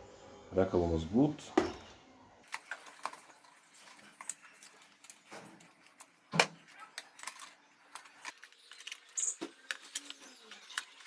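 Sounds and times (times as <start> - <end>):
plastic part clicking and rattling: 4.2 - 11.0.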